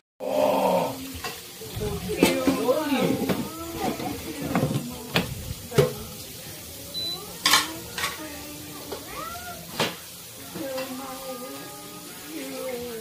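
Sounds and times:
kitchenware clattering knocks: 0:02.2 - 0:06.0, 0:07.4 - 0:08.2
short high beep: 0:07.0 - 0:07.2.

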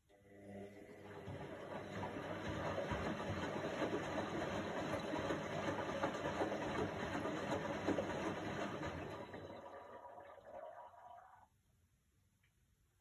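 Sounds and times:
washing machine drum churning: 0:01.0 - 0:10.8.

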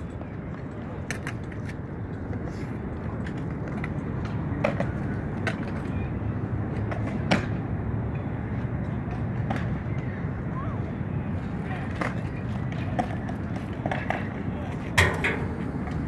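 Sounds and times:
skateboard wheels rolling on concrete: 0:00.0 - 0:16.0
skateboard clacks: 0:00.1 - 0:07.7, 0:08.5 - 0:10.2, 0:11.4 - 0:16.0.

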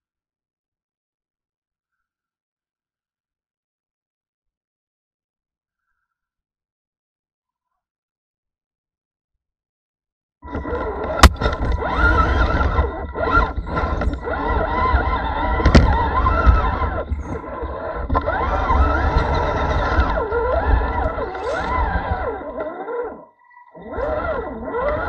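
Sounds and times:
electric motor and gears whining: 0:10.4 - 0:25.0.

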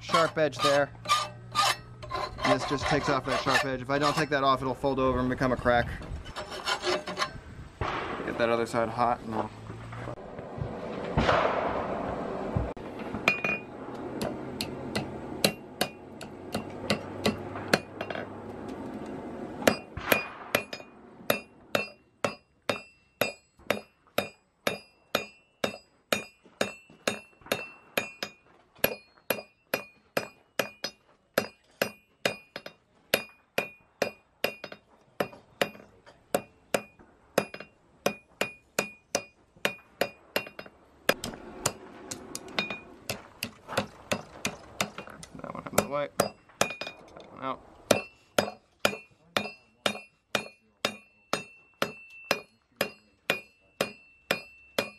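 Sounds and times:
forge fire rushing: 0:07.6 - 0:15.5, 0:40.9 - 0:44.8
hammer ringing on anvil: 0:19.6 - 0:40.7, 0:47.9 - 0:54.9.

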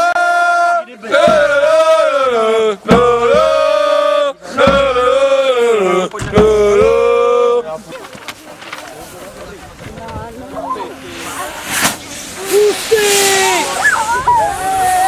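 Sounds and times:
loud lead voice singing: 0:00.0 - 0:07.6
men singing football chant: 0:00.0 - 0:07.7.

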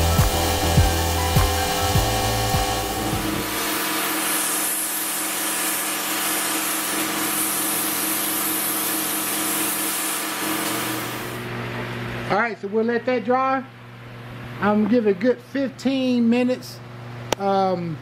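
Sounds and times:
low hum: 0:00.0 - 0:03.6
paint spray gun hissing: 0:00.0 - 0:11.4.

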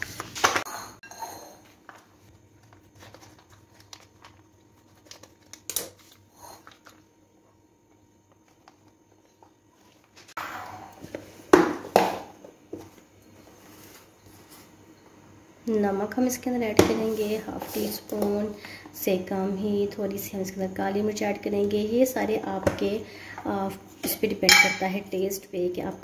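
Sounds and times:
plastic pouch crinkling: 0:02.6 - 0:07.0.

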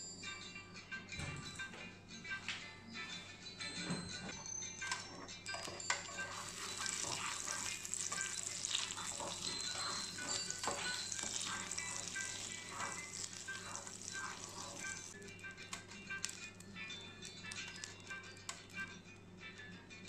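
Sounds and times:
faint background music: 0:00.0 - 0:20.0
butter sizzling in frying pan: 0:06.0 - 0:15.2
plastic spatula spreading in pan: 0:06.0 - 0:15.2.

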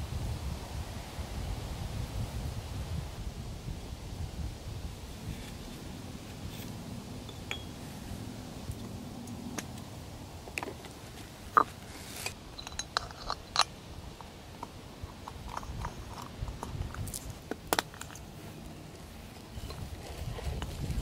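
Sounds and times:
metallic clicks and clinks: 0:11.6 - 0:13.8.

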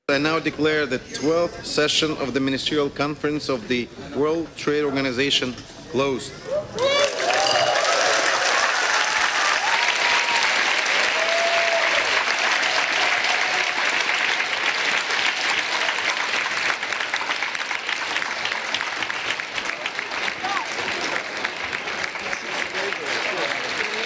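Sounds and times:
cheers and whoops: 0:06.4 - 0:14.6
crowd applause: 0:06.8 - 0:24.0.

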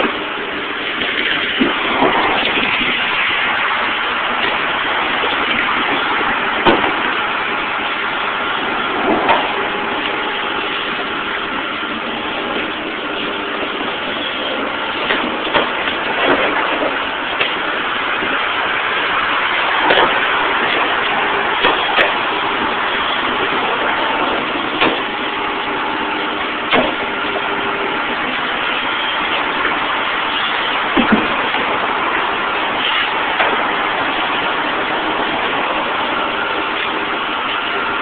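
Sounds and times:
sharp knocks: 0:06.6 - 0:07.0, 0:31.0 - 0:31.4.

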